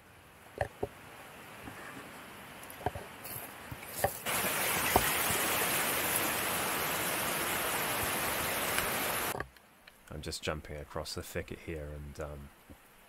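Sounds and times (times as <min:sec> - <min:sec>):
creek rushing over rocks: 0:04.2 - 0:09.4.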